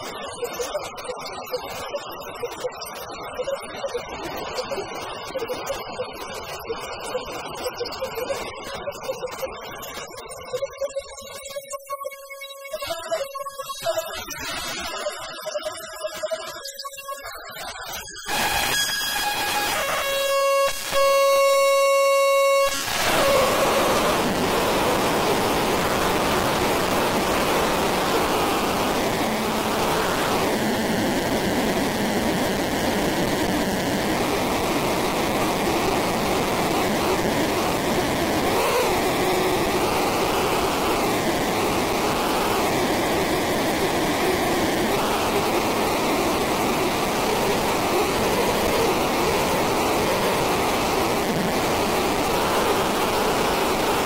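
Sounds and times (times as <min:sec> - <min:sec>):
electronic noise wash: 0:18.2 - 0:54.0.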